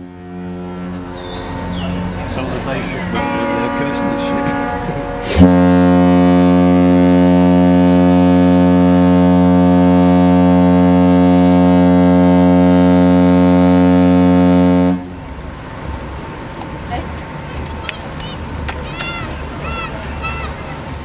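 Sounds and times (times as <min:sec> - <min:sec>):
deep ship's horn blast: 0:00.0 - 0:15.2.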